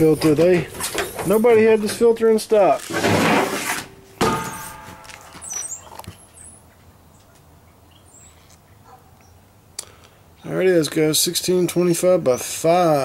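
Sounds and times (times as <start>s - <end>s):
air filter scraping rustle: 0.0s - 6.1s
knock with short ring: 4.2s - 5.7s.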